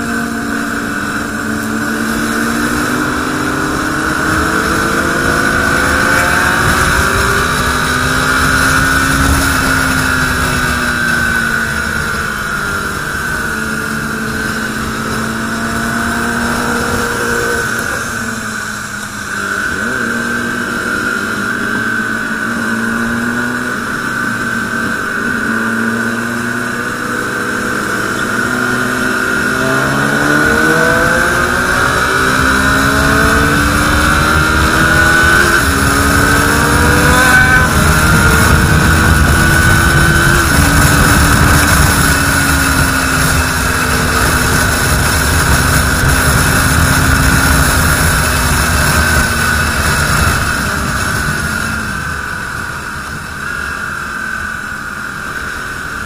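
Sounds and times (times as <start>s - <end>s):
motorcycle engine accelerating: 0.0s - 56.0s
wind rush on microphone: 0.0s - 56.0s.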